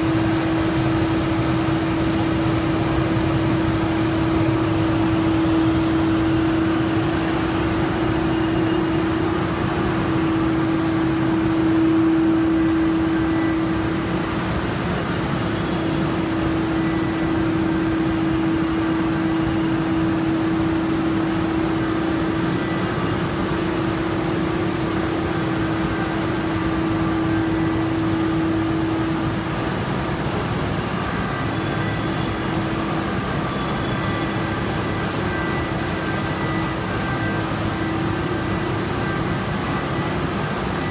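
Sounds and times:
broad machinery hum: 0:00.0 - 0:40.9
mid-pitched machinery drone: 0:00.0 - 0:40.9.

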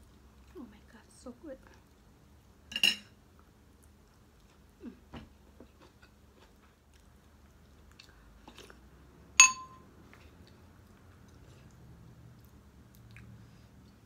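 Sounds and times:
quiet chewing: 0:00.0 - 0:00.8, 0:01.6 - 0:02.2, 0:03.3 - 0:09.0, 0:10.0 - 0:14.0
metal spoon clinking ceramic bowl: 0:09.4 - 0:09.8.

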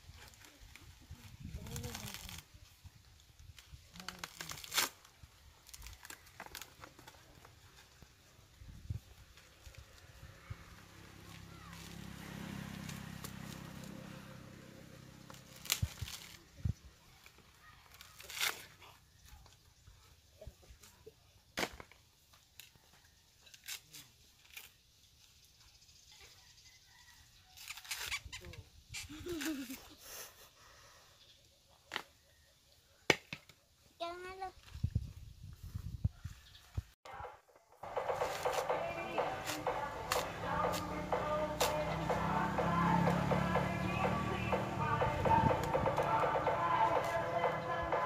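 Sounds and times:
coconut husk tearing: 0:00.0 - 0:08.2, 0:09.3 - 0:19.7, 0:23.4 - 0:24.9, 0:27.0 - 0:29.9, 0:37.8 - 0:48.0.

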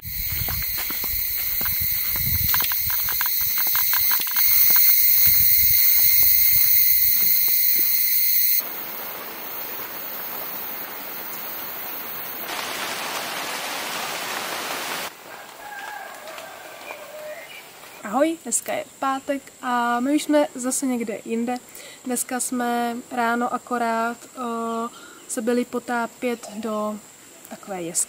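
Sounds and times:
footsteps on dirt path: 0:00.0 - 0:09.6
insects shrilling: 0:00.0 - 0:13.0
steady hiss: 0:00.0 - 0:15.4.

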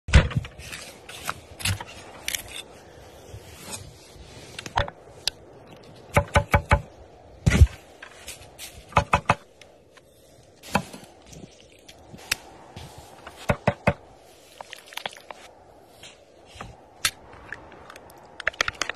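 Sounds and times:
scraping and handling sounds: 0:00.3 - 0:02.8, 0:07.5 - 0:13.6.

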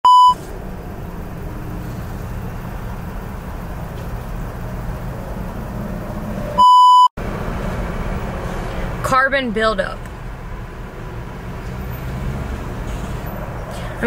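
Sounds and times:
high-pitched censor bleep: 0:00.0 - 0:00.4, 0:06.6 - 0:07.1
low rumble: 0:00.5 - 0:06.6.

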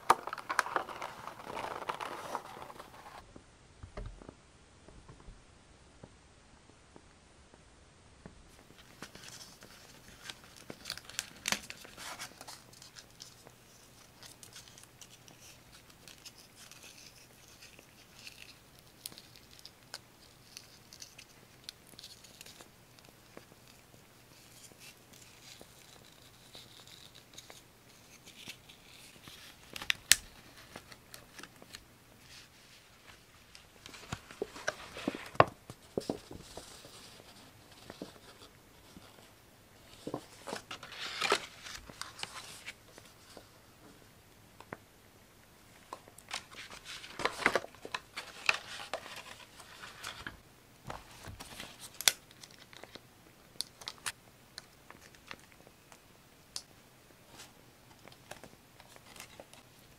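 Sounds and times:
paper rustling and tearing: 0:00.0 - 0:03.2, 0:40.0 - 0:42.8.

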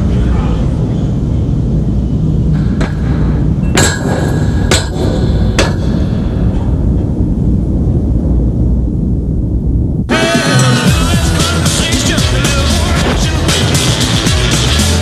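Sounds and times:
steady low rumble: 0:00.0 - 0:15.0
sharp metallic clangs: 0:02.6 - 0:06.8.

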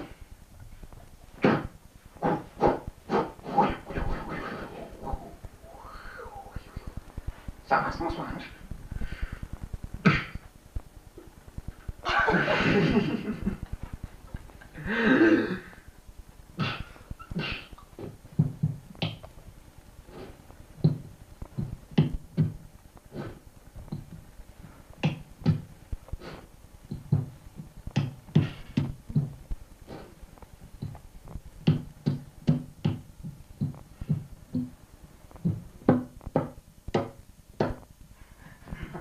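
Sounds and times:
person beatboxing: 0:01.4 - 0:07.5.

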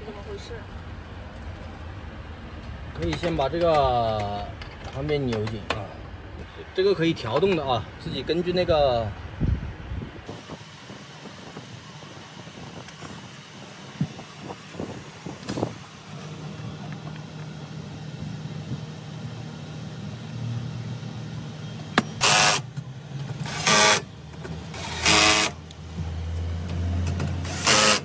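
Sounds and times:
cordless drill driving screws: 0:22.2 - 0:22.6, 0:23.4 - 0:24.1, 0:24.7 - 0:25.6, 0:27.4 - 0:28.0.

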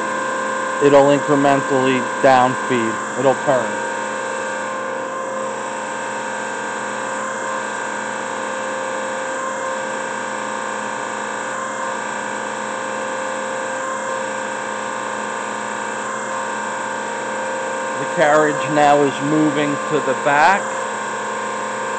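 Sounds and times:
grinder machine humming: 0:00.0 - 0:21.9.

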